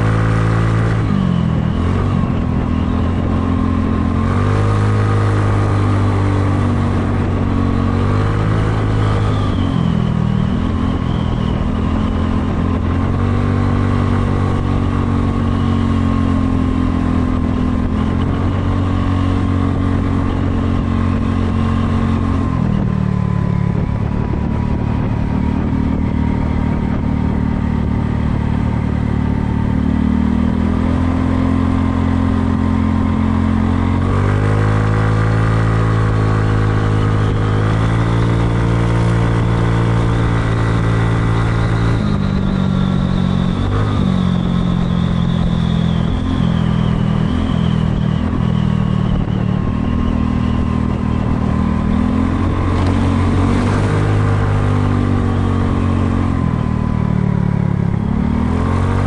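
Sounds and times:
wind and road noise: 0:00.0 - 0:59.0
scooter engine running: 0:50.8 - 0:58.6.

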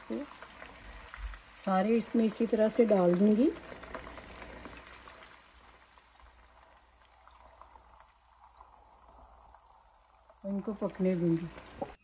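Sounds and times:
meatballs sizzling in hot oil: 0:00.0 - 0:12.0.

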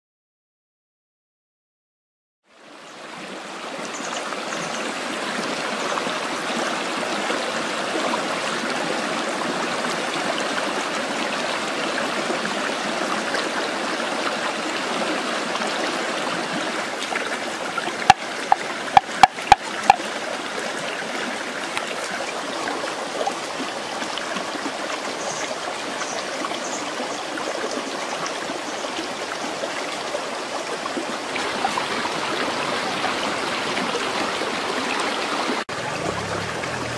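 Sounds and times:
rocky stream running: 0:02.6 - 0:36.9
sharp knocks: 0:18.0 - 0:19.6.

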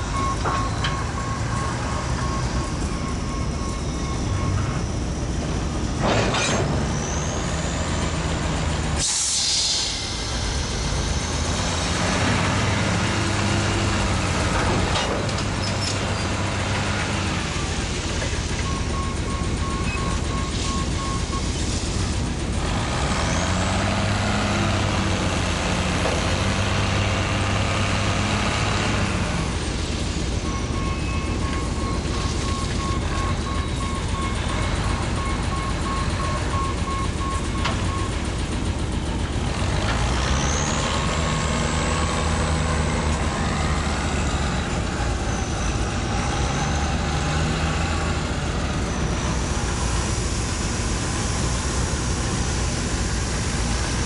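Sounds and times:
locomotive engine throttling up: 0:28.8 - 0:54.0.

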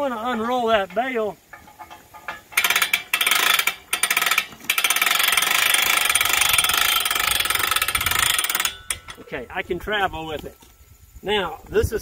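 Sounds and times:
ratchet winch clicking: 0:00.7 - 0:09.6.

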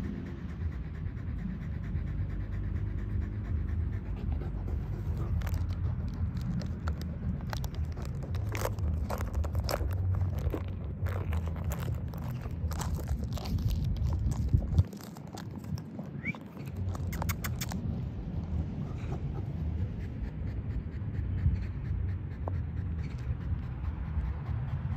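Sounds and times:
dog panting: 0:00.0 - 0:24.9
dog chewing plastic bottle: 0:03.9 - 0:17.9.

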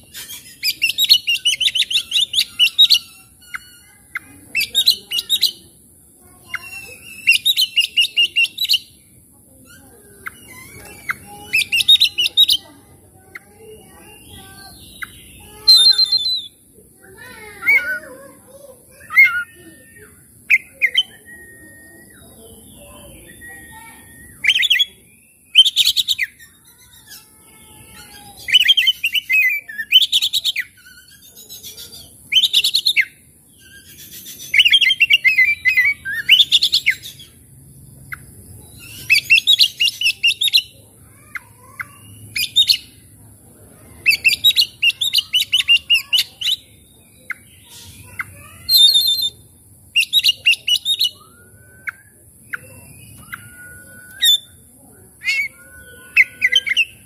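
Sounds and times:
bird chattering song: 0:00.0 - 0:57.0
thin rising bird whistles: 0:19.0 - 0:26.1, 0:50.0 - 0:57.0.

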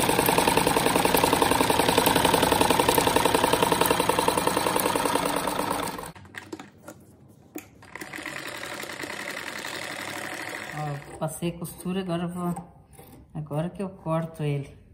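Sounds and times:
sewing machine stitching: 0:00.0 - 0:06.6, 0:07.8 - 0:11.9.

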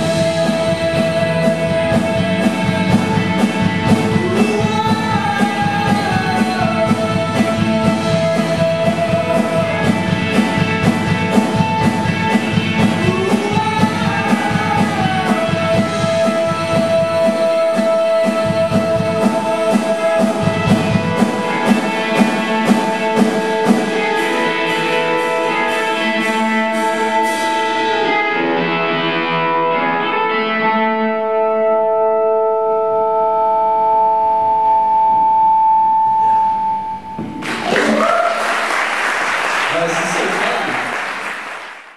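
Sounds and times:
person singing: 0:00.0 - 0:31.0
drums: 0:00.0 - 0:32.3, 0:36.2 - 0:41.9
distorted electric guitar: 0:00.0 - 0:38.8
bass guitar: 0:00.0 - 0:41.2
acoustic guitar: 0:00.0 - 0:41.9.

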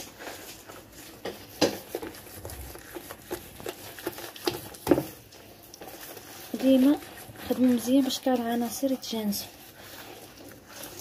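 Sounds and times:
dough scraping in a clay bowl: 0:00.0 - 0:11.0.

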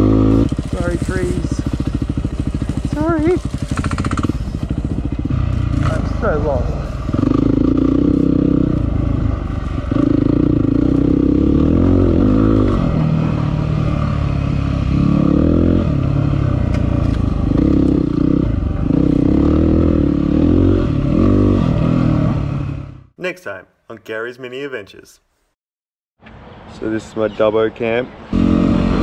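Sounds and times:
motorcycle engine revving: 0:00.0 - 0:23.2, 0:28.2 - 0:29.0.

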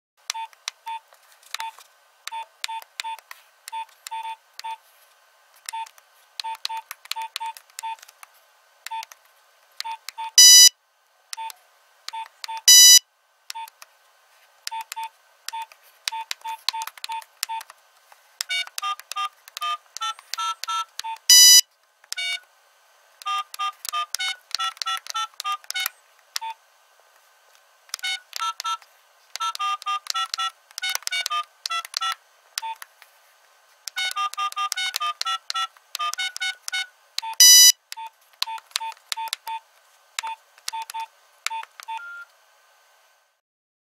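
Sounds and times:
phone keypad beeps: 0:02.3 - 0:04.8, 0:05.7 - 0:08.0, 0:08.9 - 0:09.1, 0:09.8 - 0:10.7, 0:11.4 - 0:13.7, 0:14.7 - 0:17.7, 0:18.4 - 0:21.6, 0:23.2 - 0:26.6, 0:27.9 - 0:28.8, 0:29.4 - 0:32.8, 0:33.9 - 0:39.6, 0:40.2 - 0:42.3.

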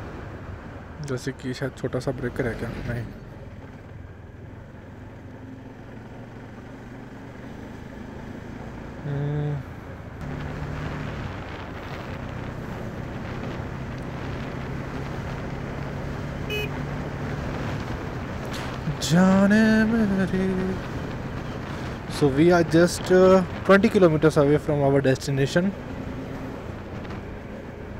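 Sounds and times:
wind on microphone: 0:10.2 - 0:15.6
vehicle horn: 0:16.4 - 0:16.8.

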